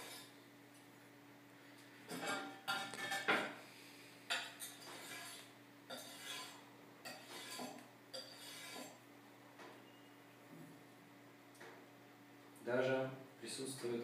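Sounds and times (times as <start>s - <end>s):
knife scraping ceramic tile: 4.6s - 9.0s.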